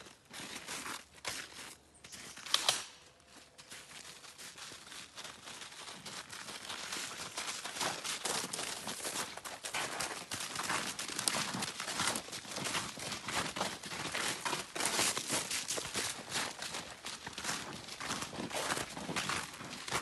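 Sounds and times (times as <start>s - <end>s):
footsteps crunching through snow and leaves: 0.0s - 20.0s
sharp crack: 2.4s - 3.1s.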